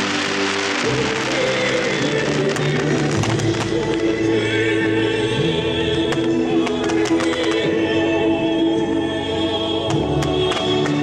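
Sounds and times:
firework cracks: 0:00.0 - 0:04.8, 0:06.0 - 0:07.7
choral singing: 0:00.0 - 0:11.0.

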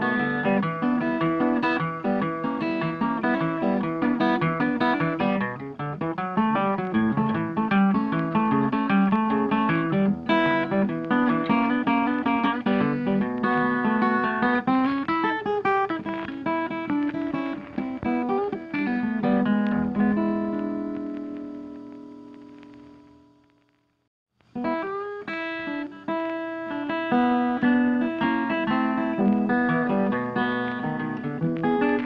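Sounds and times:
plucked guitar music: 0:00.0 - 0:23.5, 0:24.5 - 0:32.0.

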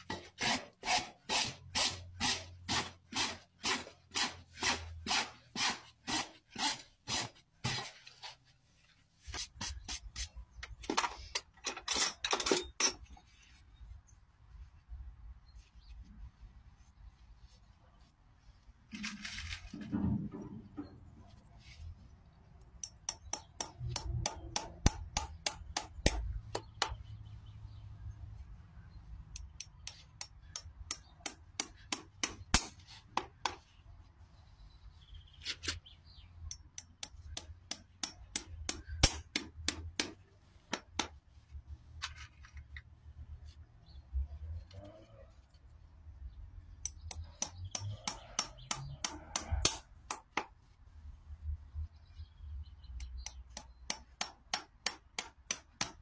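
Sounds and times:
hammer tapping nails: 0:36.5 - 0:41.1, 0:46.9 - 0:50.5, 0:53.2 - 0:56.0.

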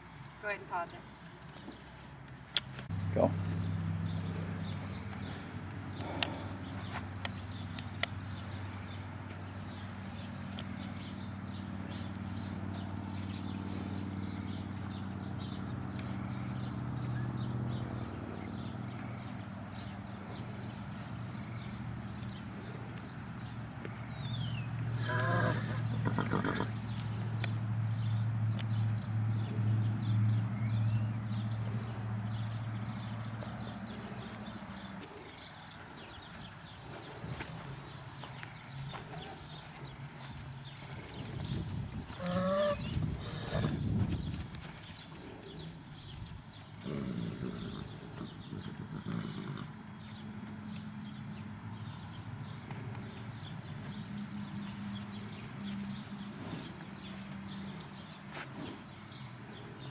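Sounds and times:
hooves shuffling: 0:00.0 - 0:59.9
small birds chirping: 0:00.0 - 0:59.9
horse whinnying: 0:25.0 - 0:26.7.

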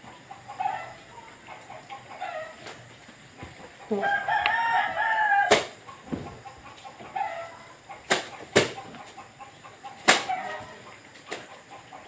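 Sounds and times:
chicken clucking: 0:00.0 - 0:12.0
rooster crowing: 0:03.9 - 0:05.8, 0:07.1 - 0:07.7, 0:10.2 - 0:10.8.

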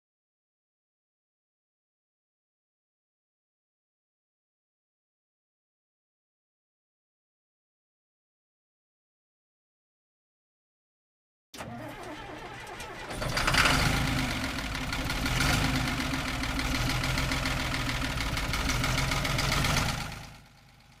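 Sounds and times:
engine running with low pulsing: 0:11.6 - 0:21.0.

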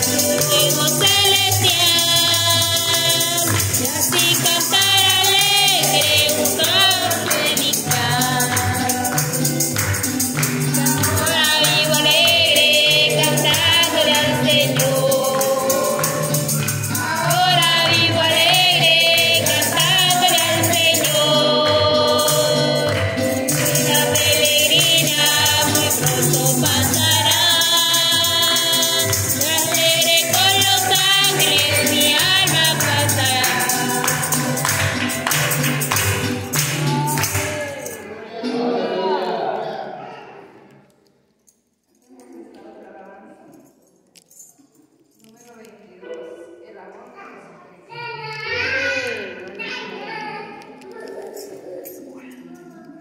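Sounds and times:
percussive rattle: 0:00.0 - 0:38.1
keyboard: 0:00.0 - 0:40.4
gospel chorus singing: 0:00.0 - 0:40.6
acoustic guitar: 0:00.0 - 0:41.1.

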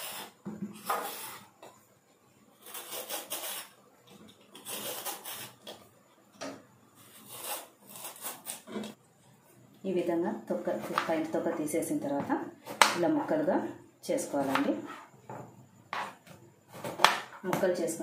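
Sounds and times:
blade scraping gourd rind: 0:02.6 - 0:03.8, 0:04.5 - 0:05.8, 0:07.0 - 0:08.8.

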